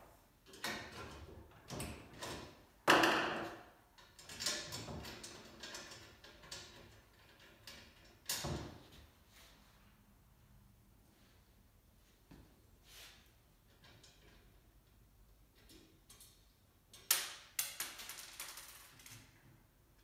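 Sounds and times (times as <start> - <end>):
tools and bolts clinking on metal: 4.0 - 8.6, 13.6 - 14.8, 15.5 - 18.8.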